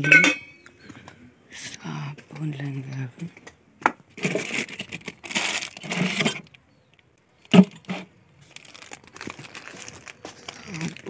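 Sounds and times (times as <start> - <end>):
toiletries rattling in a box: 4.2 - 6.6, 7.4 - 11.0.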